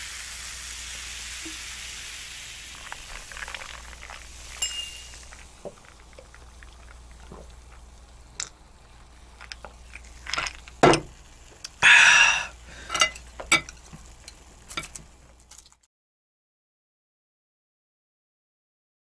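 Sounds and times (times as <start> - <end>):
ice cubes clinking: 2.7 - 8.6, 9.3 - 11.1.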